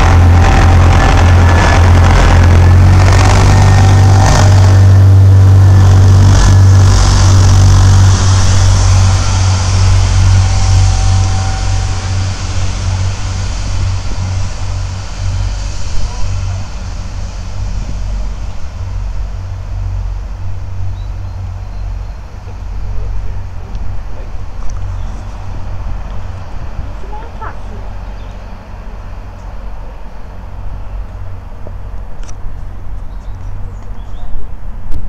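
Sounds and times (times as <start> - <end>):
diesel train engine drone: 0.0 - 35.0
hiss of train running gear: 6.1 - 34.8.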